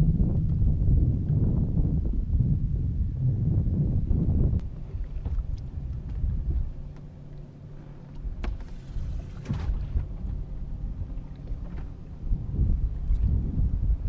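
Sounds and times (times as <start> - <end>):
wind and water rumble: 0.0 - 14.0
clicks and knocks on boat: 5.0 - 10.4.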